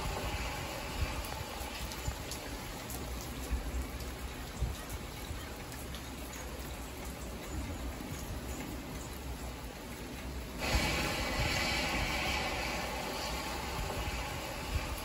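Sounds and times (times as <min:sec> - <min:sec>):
rain on car windshield: 0:00.0 - 0:15.0
road rumble: 0:00.0 - 0:15.0.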